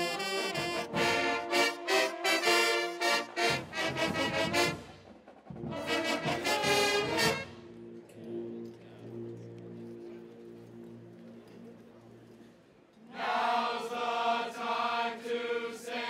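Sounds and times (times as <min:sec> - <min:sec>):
brass band chords: 0:00.0 - 0:12.2.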